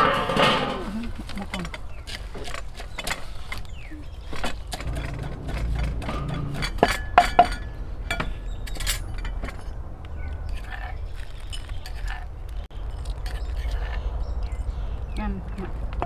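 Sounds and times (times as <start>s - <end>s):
dishes and utensils clinking: 0.0s - 1.8s, 4.4s - 9.8s.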